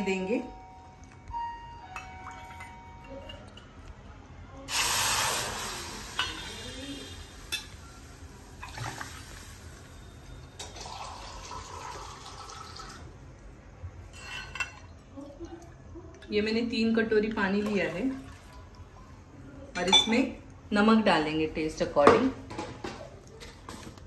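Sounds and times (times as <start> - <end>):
water pouring into pot: 8.4 - 13.2.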